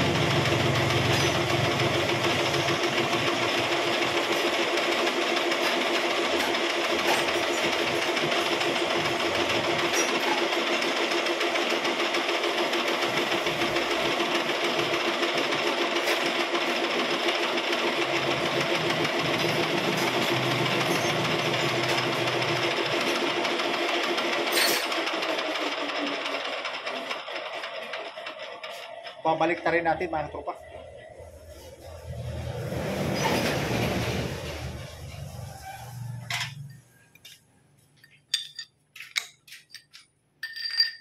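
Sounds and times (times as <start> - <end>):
metal lathe running: 0.0 - 29.7.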